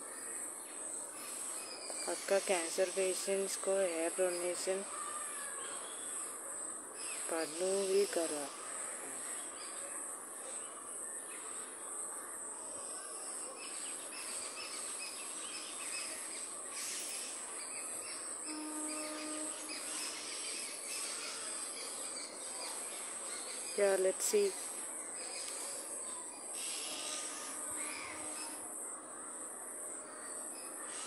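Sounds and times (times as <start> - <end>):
faint outdoor background noise: 0.0 - 31.0
insects droning: 0.1 - 31.0
low steady tone: 18.4 - 20.2.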